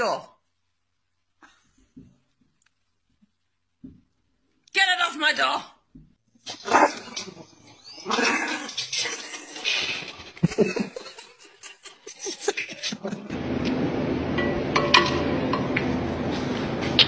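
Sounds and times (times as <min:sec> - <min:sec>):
puppy vocalizing: 0:06.5 - 0:11.0
steady low hum: 0:12.1 - 0:17.0.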